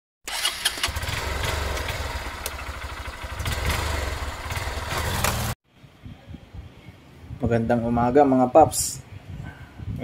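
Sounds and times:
motorcycle engine running hard: 0:00.9 - 0:05.6.

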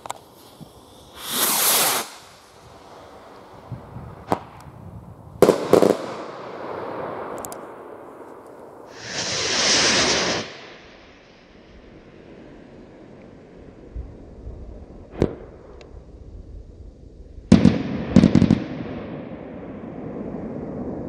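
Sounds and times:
rocket launching whoosh: 0:01.1 - 0:03.0, 0:08.9 - 0:12.1
loud firework bangs: 0:05.4 - 0:07.4, 0:08.9 - 0:11.3, 0:17.5 - 0:19.5
sharp crack: 0:05.4 - 0:11.5.

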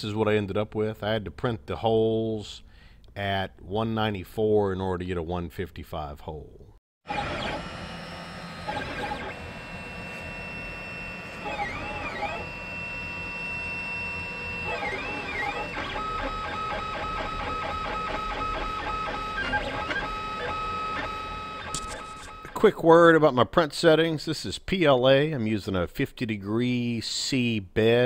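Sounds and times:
stepper motors whining: 0:07.1 - 0:22.6.

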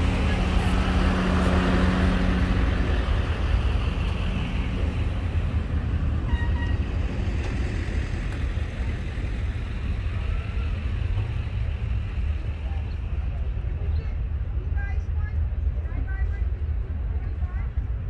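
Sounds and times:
car engines rumbling: 0:00.0 - 0:18.0
car horn toot: 0:06.3 - 0:06.8.

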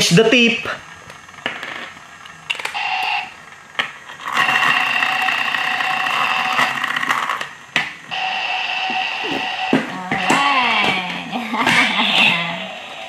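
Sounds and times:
toy electronic sound effect: 0:04.2 - 0:07.4, 0:08.1 - 0:13.0.

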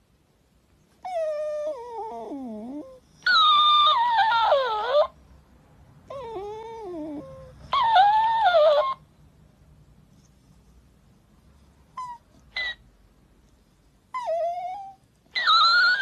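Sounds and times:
dog whining: 0:01.0 - 0:05.2, 0:06.0 - 0:09.1, 0:11.9 - 0:12.8, 0:14.1 - 0:16.0.

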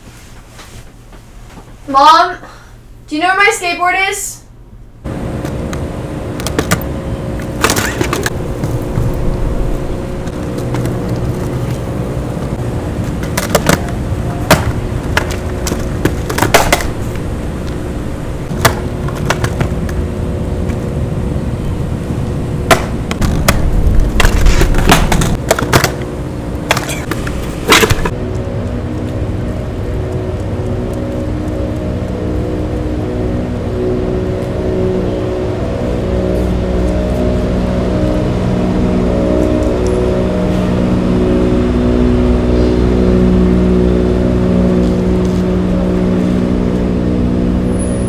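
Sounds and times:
skateboard wheels rumbling: 0:05.3 - 0:34.6
skateboard clacking on pavement: 0:13.2 - 0:16.9, 0:18.6 - 0:19.8.

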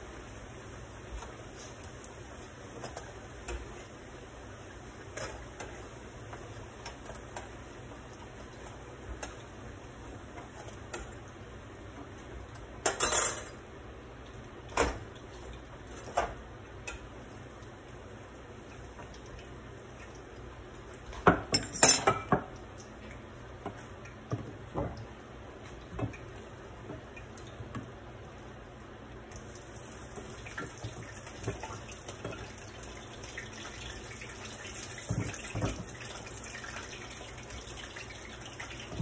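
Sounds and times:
oil frying hiss: 0:00.0 - 0:21.5, 0:22.3 - 0:39.0.

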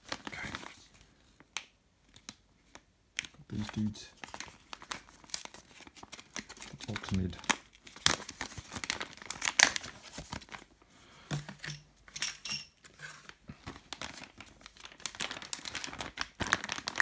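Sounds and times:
plastic bag crinkling: 0:03.5 - 0:10.7, 0:13.0 - 0:17.0.

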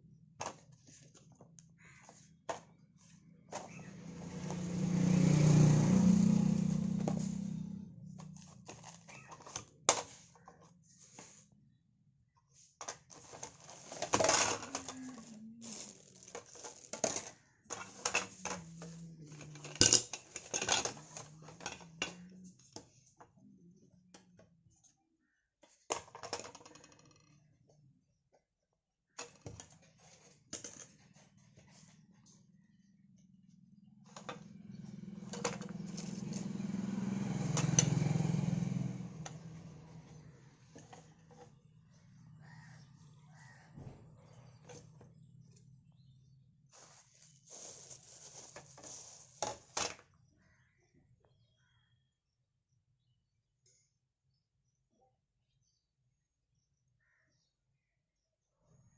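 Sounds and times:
vehicle engine passing by: 0:03.5 - 0:09.2, 0:17.8 - 0:19.8, 0:34.1 - 0:45.3
cardboard and plastic rustling: 0:08.2 - 0:11.5, 0:12.8 - 0:22.0, 0:46.7 - 0:50.0.

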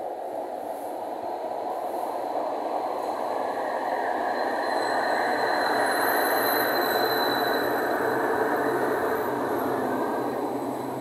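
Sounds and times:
tram wheels rumbling on rail: 0:00.0 - 0:11.0.

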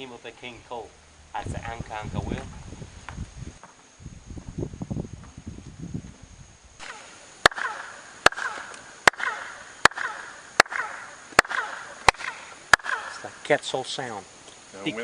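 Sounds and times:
falling chirp echo: 0:06.8 - 0:13.8
sharp hand claps: 0:07.4 - 0:10.8.

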